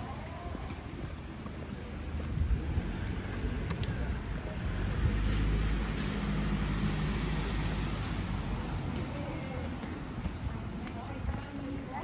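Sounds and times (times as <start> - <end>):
rain: 0.0 - 10.9
tyres hissing on wet road: 4.6 - 9.2.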